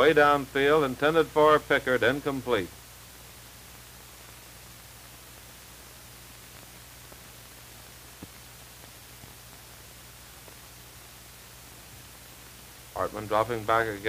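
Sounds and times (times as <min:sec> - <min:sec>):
film soundtrack hiss: 0:00.0 - 0:14.0
faint click: 0:08.2 - 0:08.4.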